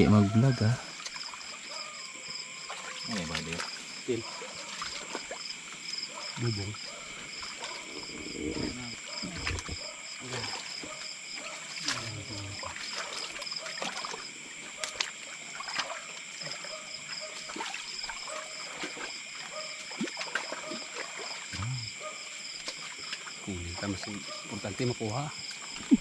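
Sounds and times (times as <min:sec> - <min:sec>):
high-pitched insect trilling: 0:00.0 - 0:26.0
water splashes: 0:00.8 - 0:26.0
pulsing frog call: 0:11.8 - 0:22.0.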